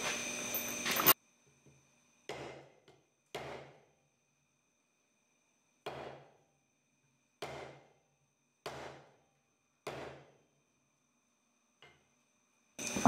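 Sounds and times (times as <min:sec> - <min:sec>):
hammer striking wooden block: 0:08.6 - 0:09.1, 0:09.9 - 0:10.2.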